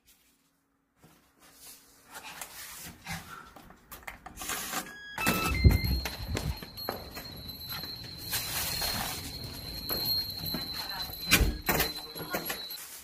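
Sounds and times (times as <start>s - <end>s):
electronic lock beeps: 4.9s - 6.4s
shuffling and rubbing: 6.5s - 11.2s.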